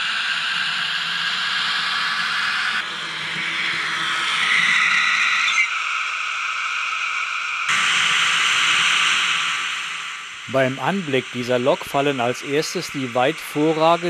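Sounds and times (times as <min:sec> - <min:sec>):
tinny diesel engine sound: 0:06.6 - 0:14.0
model train running on track: 0:10.4 - 0:14.0.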